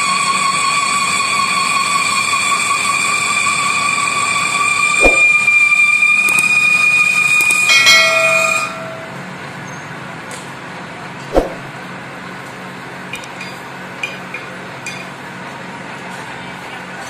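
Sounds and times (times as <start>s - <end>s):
sharp knock: 5.0s - 5.5s, 11.3s - 11.6s.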